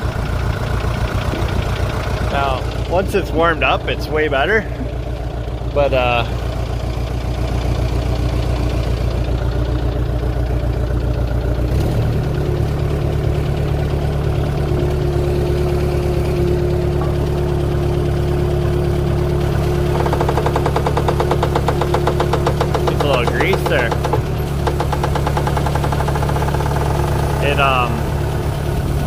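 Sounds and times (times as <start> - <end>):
loader engine running: 0.0 - 29.0
fast even rattle: 19.4 - 28.0.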